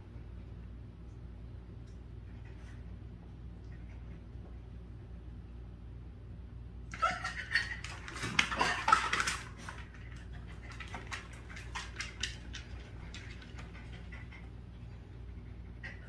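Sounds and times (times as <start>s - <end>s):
dog whining: 6.9s - 9.2s
dog scuffling: 7.4s - 14.4s.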